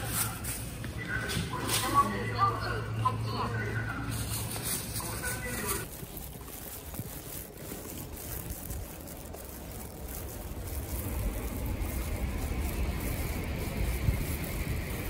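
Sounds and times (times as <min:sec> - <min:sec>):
wind buffeting microphone: 0:05.3 - 0:15.0.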